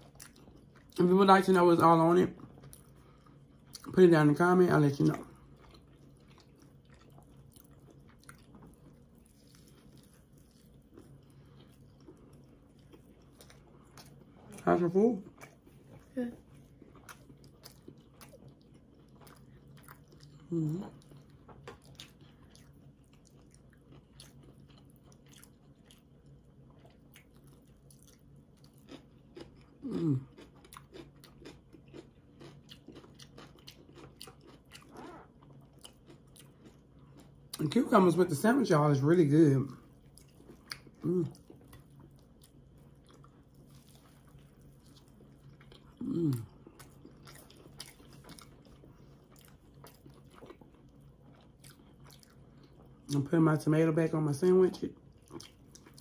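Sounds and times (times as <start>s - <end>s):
faint low hum: 0.0s - 56.0s
people chewing food: 0.0s - 56.0s
person humming mm: 20.5s - 21.0s, 29.8s - 30.3s, 46.0s - 46.5s.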